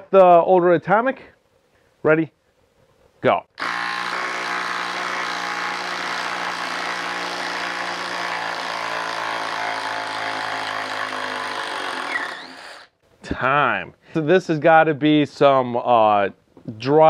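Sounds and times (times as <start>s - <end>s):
impact driver hammering: 3.6s - 12.4s.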